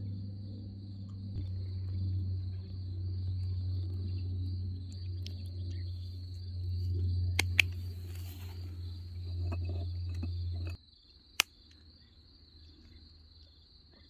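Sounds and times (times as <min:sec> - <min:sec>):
low hum: 0:00.0 - 0:10.8
crickets chirping: 0:00.0 - 0:14.0.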